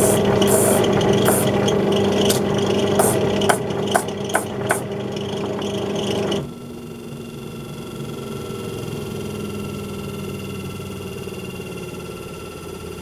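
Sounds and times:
disc sander sanding wood: 0.0 - 4.8
sander motor whine: 0.0 - 13.0
sharp knocks: 1.2 - 1.5, 2.2 - 4.9.

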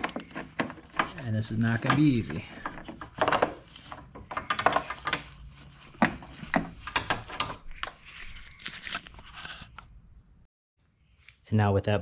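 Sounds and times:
hand rubbing plastic panels: 0.0 - 8.4.

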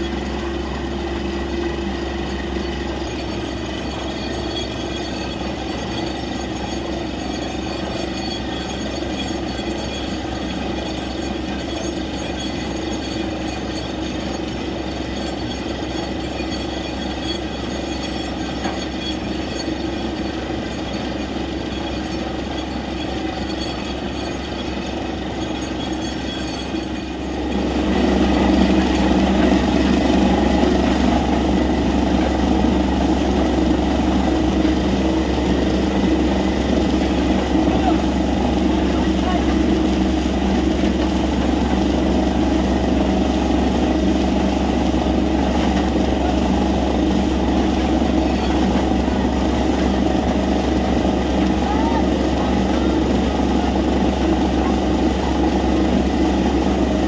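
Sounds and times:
drilling rig droning: 0.0 - 57.0
water gushing and splashing: 26.9 - 57.0.

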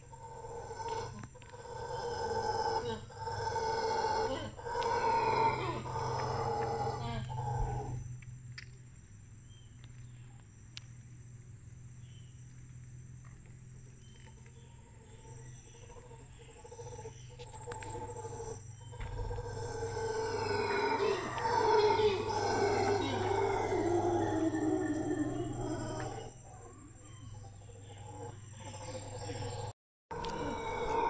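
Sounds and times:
howler monkeys howling: 0.0 - 8.2, 14.1 - 31.0.

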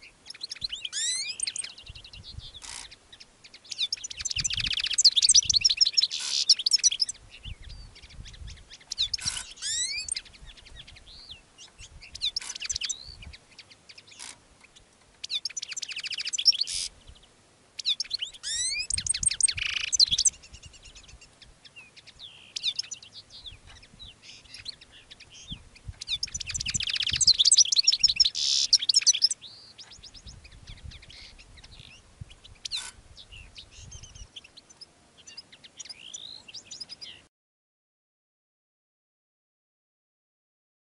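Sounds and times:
single bird chirps: 0.0 - 3.0, 8.2 - 10.3, 17.8 - 20.3, 22.0 - 32.0
goldfinch twittering song: 0.0 - 37.3.

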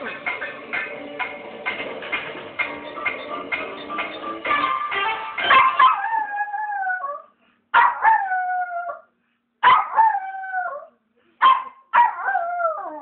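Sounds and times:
tv clock music: 0.0 - 6.1.

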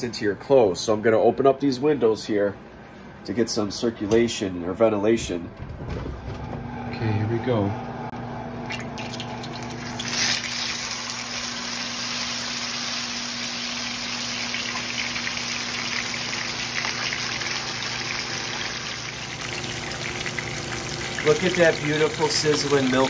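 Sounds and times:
fish frying in hot oil: 9.1 - 23.0.

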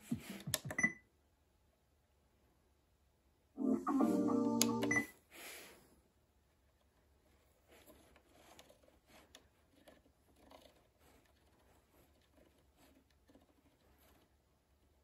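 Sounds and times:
soft rustle: 6.5 - 15.0.

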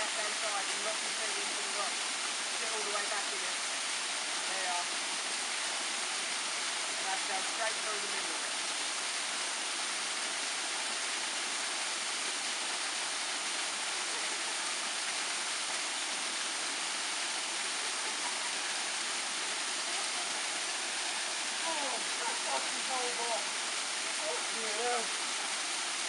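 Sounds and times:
waterfall rushing: 0.0 - 26.0.

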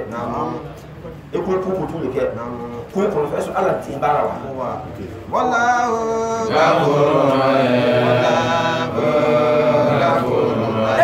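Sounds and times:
man chanting: 0.0 - 7.2.

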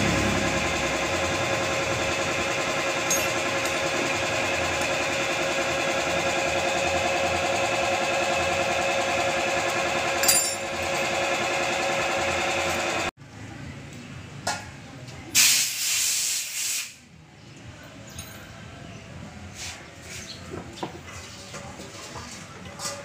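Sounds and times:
hiss: 15.4 - 17.0.

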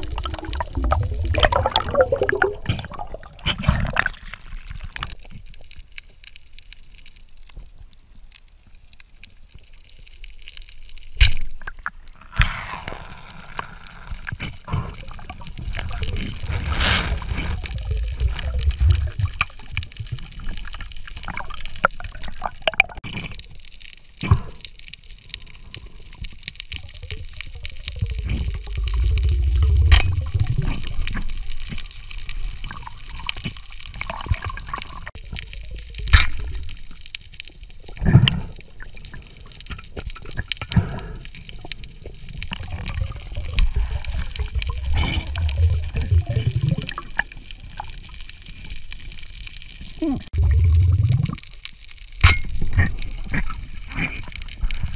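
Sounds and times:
low underwater rumble: 0.0 - 5.2, 12.7 - 23.0, 26.8 - 48.1, 50.0 - 54.9
underwater gurgling and sloshing: 0.0 - 54.9.

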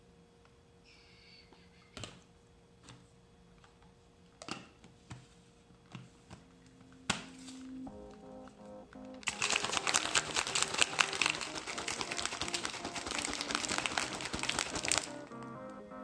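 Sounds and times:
liquid sloshing: 9.2 - 15.3
ice rattling in shaker bottle: 9.2 - 15.4.

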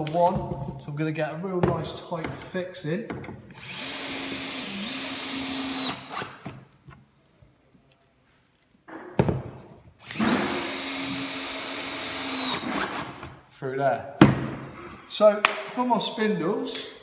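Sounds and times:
cordless drill whining: 3.6 - 6.4, 10.0 - 13.2.

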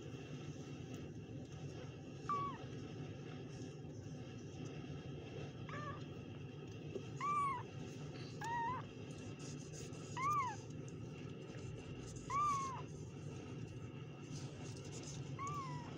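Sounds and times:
kittens mewing: 7.2 - 7.7, 8.3 - 8.9, 10.2 - 10.7, 12.2 - 12.9, 15.3 - 15.9.

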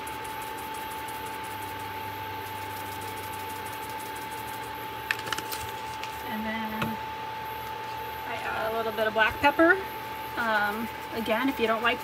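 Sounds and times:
induction cooktop hum and whine: 0.0 - 12.0.

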